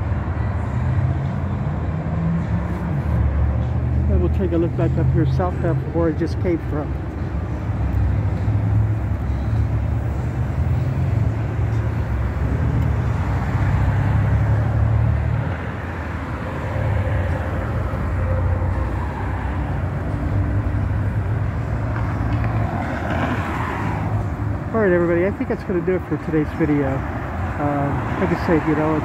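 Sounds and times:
road traffic rumble: 0.0s - 29.0s.

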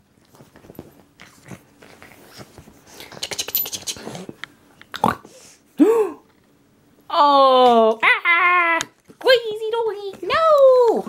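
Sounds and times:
puppy snuffling and scrabbling: 0.2s - 4.4s
puppy vocalizing: 3.0s - 4.4s.

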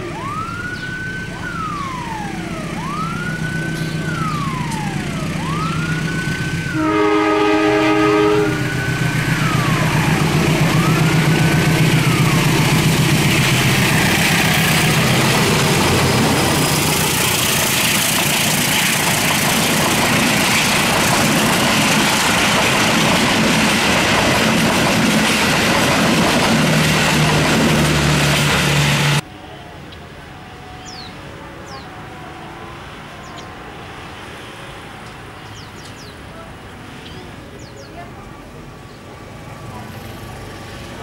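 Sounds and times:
locomotive engine passing: 0.0s - 41.0s
train wheels on rails: 2.6s - 29.2s.

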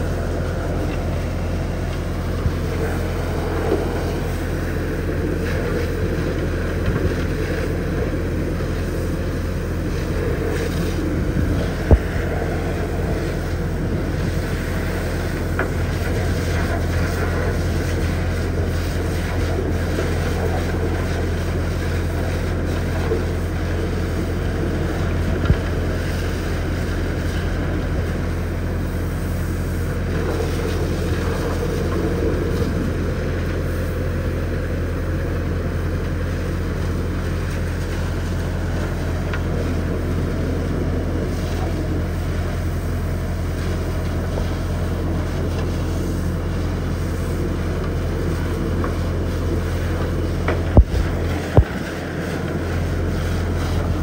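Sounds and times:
high-pressure water jet spraying metal: 0.0s - 54.0s
low engine drone: 0.0s - 54.0s.

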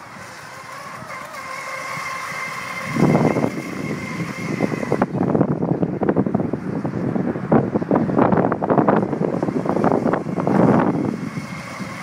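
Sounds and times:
electric motor high whine: 0.0s - 6.0s, 8.7s - 12.0s
wind buffeting microphone: 0.0s - 12.0s.

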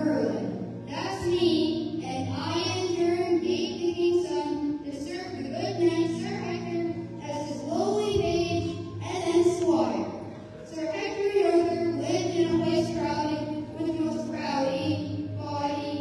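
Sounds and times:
child singing into microphone: 0.0s - 10.1s, 10.7s - 16.0s.

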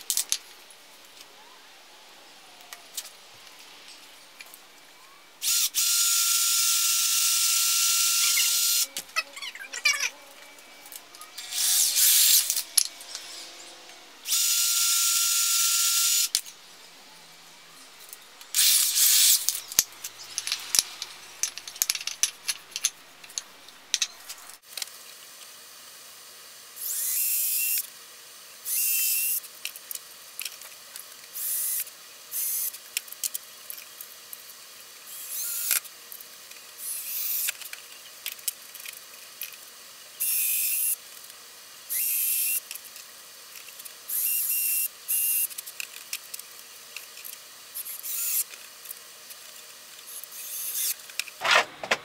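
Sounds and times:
cordless drill bursts: 5.4s - 9.0s, 18.5s - 19.5s.

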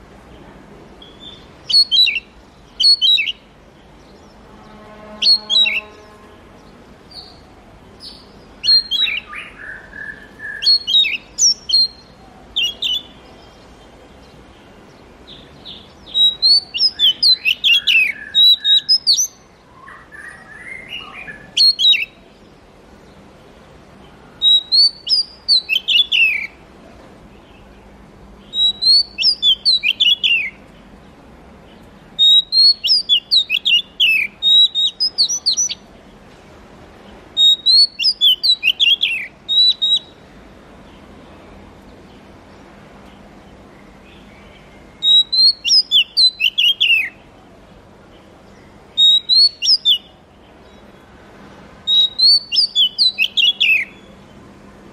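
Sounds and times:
bird singing whistled notes: 1.0s - 13.6s, 15.3s - 22.4s, 24.4s - 26.6s, 28.4s - 30.6s, 32.2s - 35.9s, 37.4s - 40.2s, 44.1s - 47.2s, 48.8s - 50.8s, 51.9s - 54.2s
low drawn-out bird whistles: 28.5s - 30.6s, 49.0s - 50.0s.

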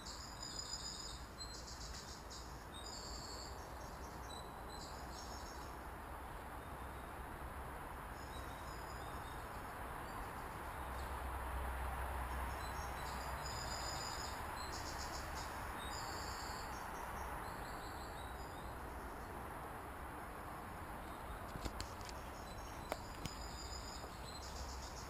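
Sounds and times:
insects trilling: 12.4s - 19.4s, 20.7s - 25.0s.

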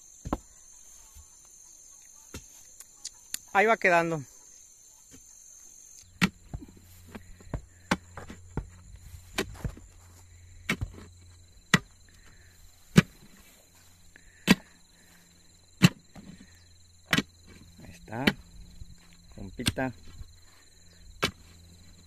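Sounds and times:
insects buzzing: 0.0s - 22.0s
digging bar thudding into soil: 6.1s - 11.1s, 11.7s - 12.3s, 12.9s - 13.5s, 14.4s - 14.8s, 15.8s - 18.5s, 21.2s - 21.6s.

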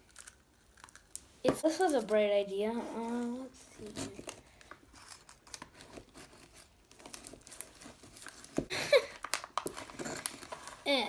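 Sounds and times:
foil pouch crinkling and tearing: 3.8s - 11.0s.

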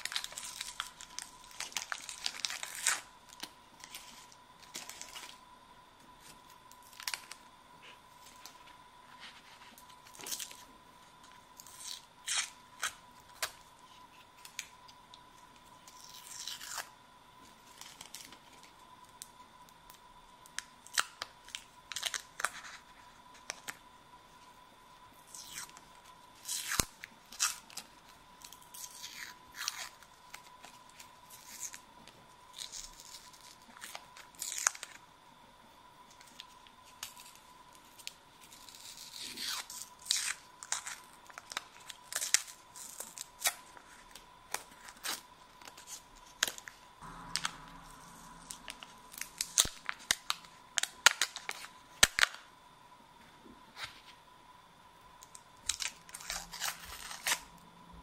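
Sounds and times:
paper wrappers tearing and crinkling: 0.0s - 5.4s, 36.2s - 52.4s, 55.3s - 57.6s.

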